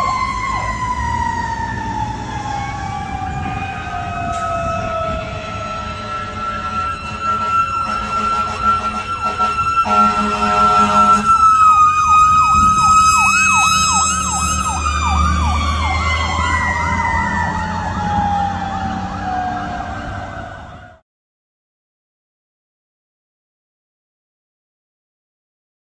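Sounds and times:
electronic siren yelping: 0:00.0 - 0:21.0
mechanical siren whine: 0:00.0 - 0:21.0
truck engine rumbling: 0:00.0 - 0:21.0
air horn: 0:05.1 - 0:11.4.

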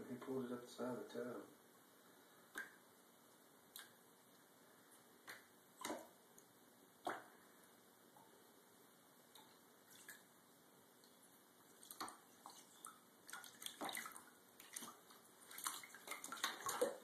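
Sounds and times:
water splashing in a bathtub: 0:02.5 - 0:02.8, 0:03.6 - 0:04.1, 0:05.2 - 0:07.4, 0:09.2 - 0:17.0.

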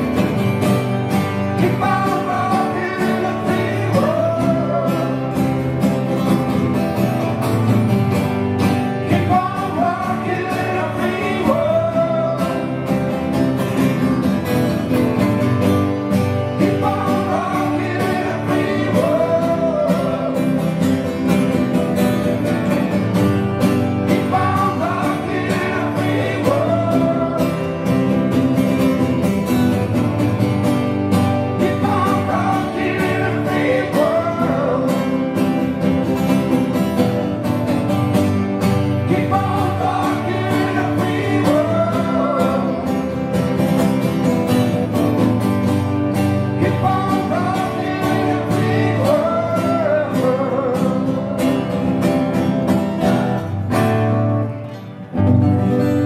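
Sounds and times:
strummed guitars: 0:00.0 - 0:56.0
men singing together: 0:01.4 - 0:05.6, 0:08.7 - 0:13.1, 0:16.6 - 0:21.0, 0:24.0 - 0:28.2, 0:31.4 - 0:35.8, 0:38.8 - 0:43.3, 0:46.4 - 0:51.4.

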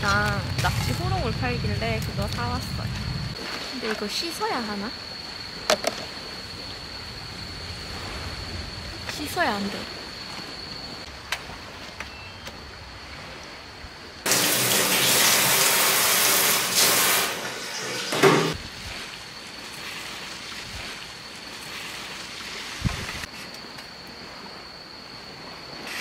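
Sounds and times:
tap water running into a steel sink: 0:14.3 - 0:18.5.

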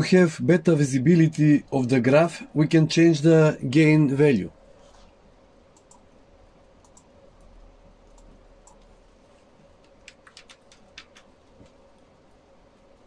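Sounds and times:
computer mouse clicks: 0:05.7 - 0:06.1, 0:06.8 - 0:09.0, 0:09.8 - 0:12.0.

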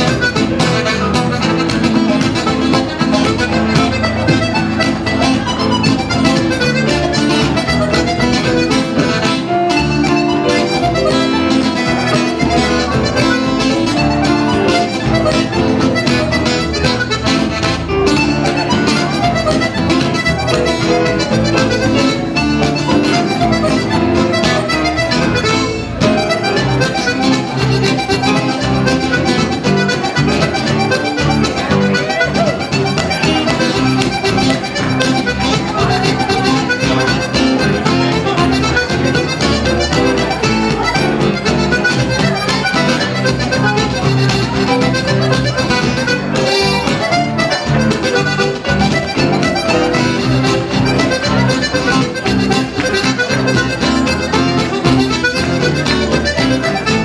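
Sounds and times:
acoustic guitar strumming: 0:00.0 - 0:57.0
button accordion folk tune: 0:00.0 - 0:57.0
upright bass: 0:00.0 - 0:57.0.

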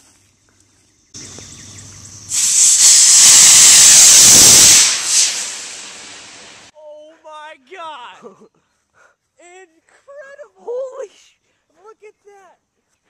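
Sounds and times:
fuse fizzing: 0:01.2 - 0:06.7
rocket motor hissing: 0:01.2 - 0:06.7.

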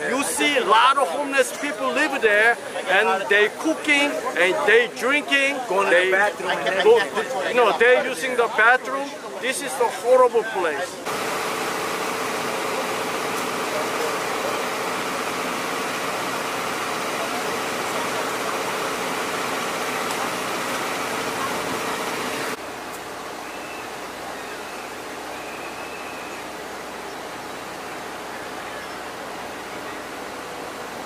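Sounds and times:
truck engine rushing hum: 0:11.1 - 0:23.2.

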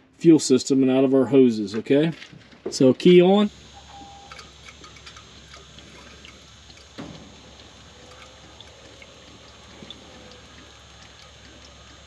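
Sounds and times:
fuel pump faint steady hum: 0:02.7 - 0:12.0.

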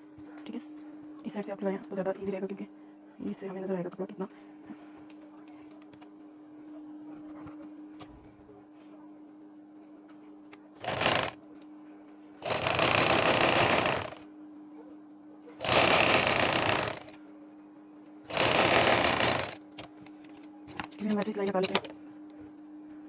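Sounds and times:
sewing machine stitching: 0:10.8 - 0:11.4, 0:12.4 - 0:14.2, 0:15.6 - 0:17.1, 0:18.3 - 0:19.6.

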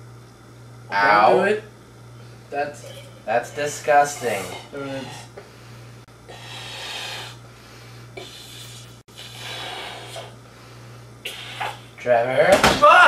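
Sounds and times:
steady low hum: 0:00.0 - 0:13.0
person blowing up a balloon: 0:06.3 - 0:07.5, 0:08.2 - 0:10.4, 0:11.2 - 0:12.0.

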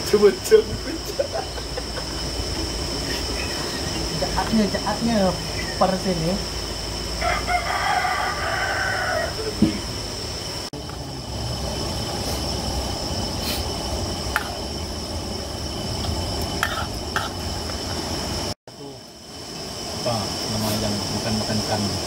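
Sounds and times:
insects droning: 0:00.0 - 0:22.0
steady outdoor hum: 0:00.0 - 0:22.0
rooster crowing: 0:07.0 - 0:10.0.

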